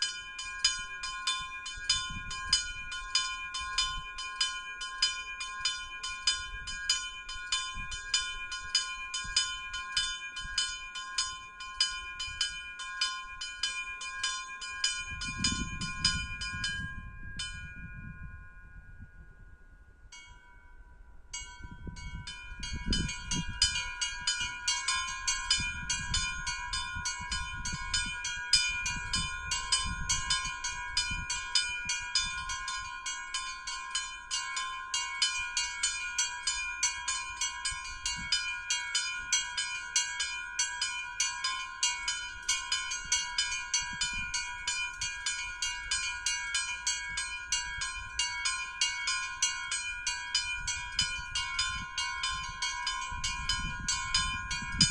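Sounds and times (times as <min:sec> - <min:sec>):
small bells pealing: 0:00.0 - 0:54.9.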